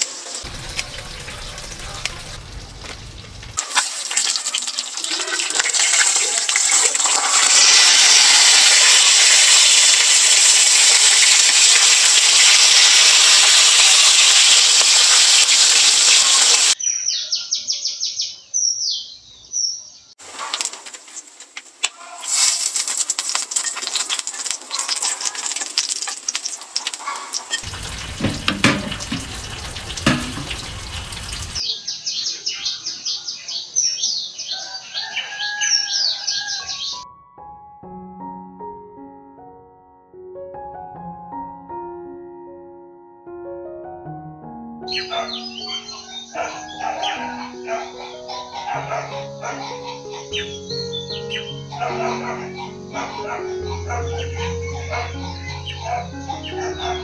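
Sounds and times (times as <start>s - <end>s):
low thumps: 0.5s - 3.6s, 27.6s - 31.6s
birds chirping rapidly: 16.6s - 20.2s, 27.0s - 37.0s, 44.8s - 57.0s
rustling: 20.2s - 31.5s.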